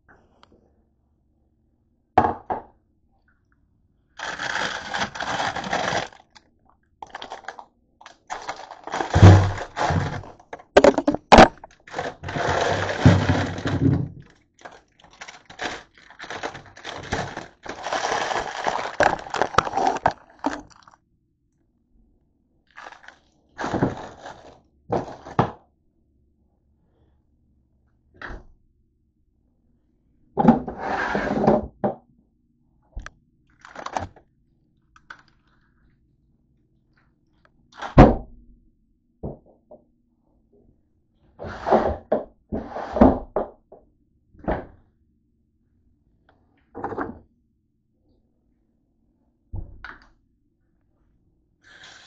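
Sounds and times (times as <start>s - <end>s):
rustling handling noise: 4.2s - 21.0s, 22.7s - 25.4s, 33.5s - 34.2s
knocks and thumps: 8.4s - 14.2s.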